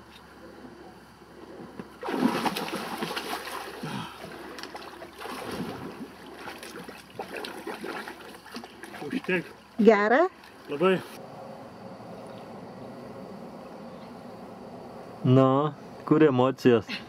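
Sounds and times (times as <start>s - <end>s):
water splashing from swimming: 2.0s - 9.7s.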